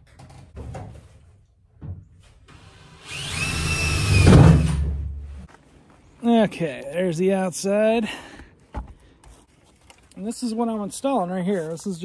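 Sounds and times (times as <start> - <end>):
cordless drill whining: 2.6 - 4.4.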